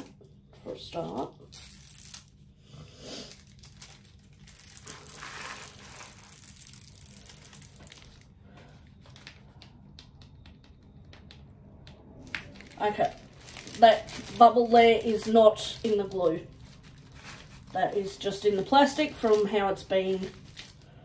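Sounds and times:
plastic film crinkling: 0:03.3 - 0:09.7, 0:12.2 - 0:21.0
small crackles: 0:03.3 - 0:11.5, 0:12.2 - 0:21.0.

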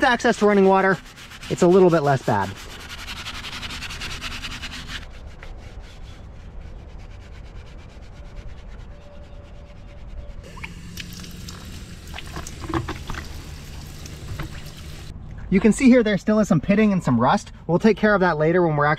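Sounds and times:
scrubbing pad on wheel rim: 0:00.0 - 0:09.1, 0:10.4 - 0:15.1
water splashing onto wheel: 0:10.5 - 0:15.1.

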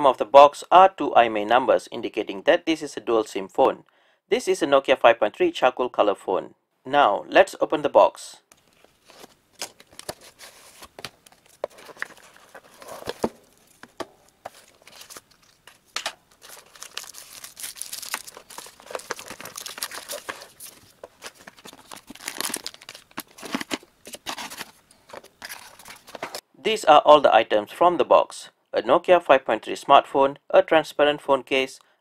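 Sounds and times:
paper and plastic crinkling: 0:08.6 - 0:26.4.

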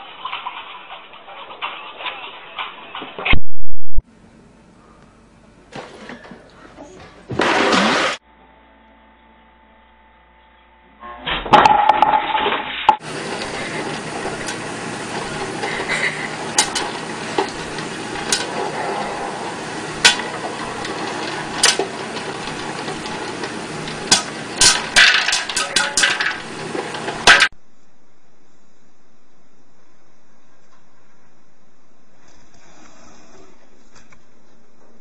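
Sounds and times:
popcorn popper humming: 0:04.1 - 0:08.5, 0:11.5 - 0:27.6
loud clatter: 0:07.3 - 0:08.2, 0:11.5 - 0:27.5
popcorn kernels popping: 0:13.0 - 0:27.6.

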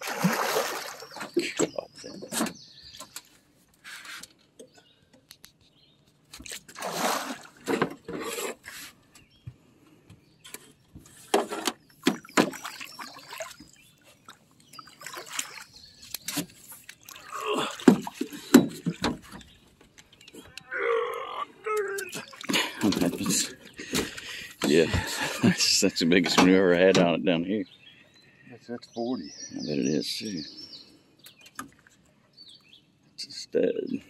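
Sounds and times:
fish splashing in water: 0:00.0 - 0:01.4, 0:06.6 - 0:07.7, 0:12.1 - 0:19.1.

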